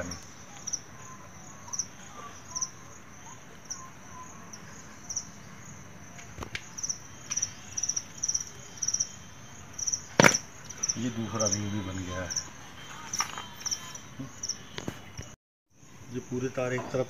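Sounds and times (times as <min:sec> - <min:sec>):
cricket chirping: 0:00.0 - 0:17.0.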